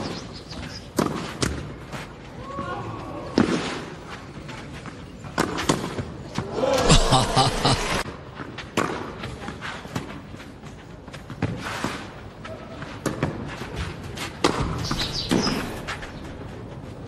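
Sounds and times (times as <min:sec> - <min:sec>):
tennis rackets hitting ball: 0:14.4 - 0:15.5.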